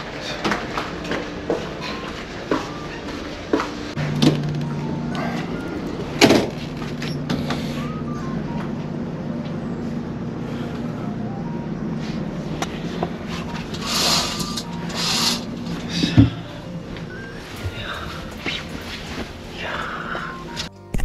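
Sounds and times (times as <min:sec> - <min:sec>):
ship engines droning: 0:00.0 - 0:20.7
curtain swishing: 0:13.8 - 0:15.6.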